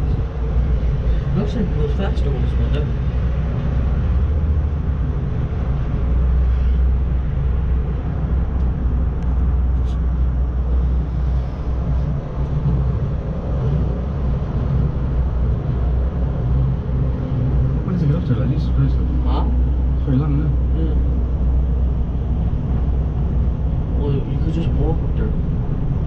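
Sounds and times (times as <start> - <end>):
cable car cabin rumble: 0.0 - 26.0.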